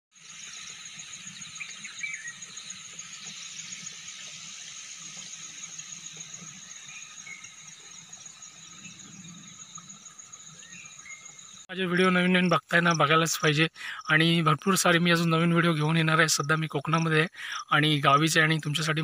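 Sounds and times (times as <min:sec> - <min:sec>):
bird chirps: 0:00.2 - 0:11.7
insects trilling: 0:00.2 - 0:19.0.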